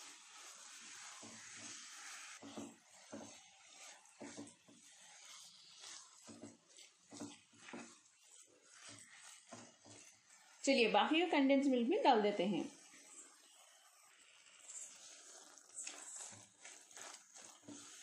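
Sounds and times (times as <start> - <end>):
steady hiss: 0.0 - 4.4
spatula scraping a pan: 0.0 - 18.0.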